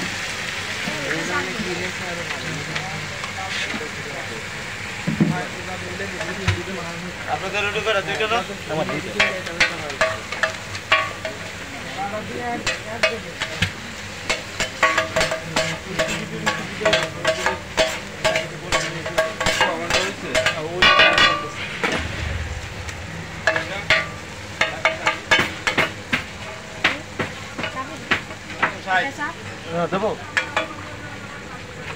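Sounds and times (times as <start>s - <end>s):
food sizzling: 0.0s - 31.9s
metal spatulas clanging on griddle: 8.8s - 11.5s, 12.6s - 21.6s, 30.4s - 30.8s.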